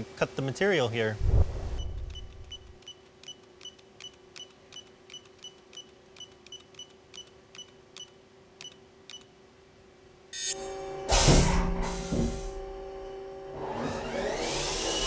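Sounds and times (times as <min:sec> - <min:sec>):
low electrical hum: 0:00.0 - 0:14.4
short high clicking beeps: 0:01.8 - 0:09.3.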